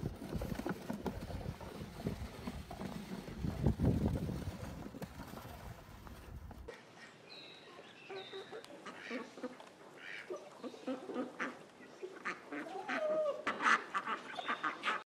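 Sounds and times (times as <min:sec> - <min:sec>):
chickens clucking: 0:08.0 - 0:15.0
duck quacking: 0:08.8 - 0:15.0.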